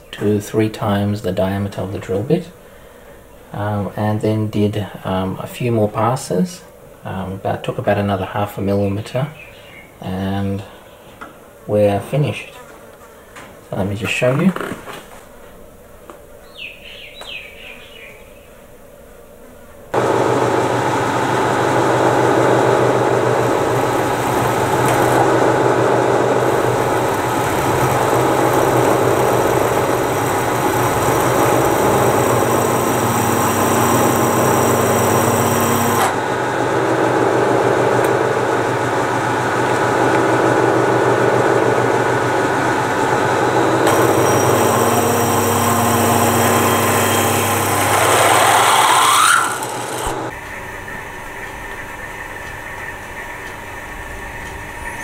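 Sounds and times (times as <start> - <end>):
electric drill cutting metal: 20.0 - 41.6, 42.4 - 50.3.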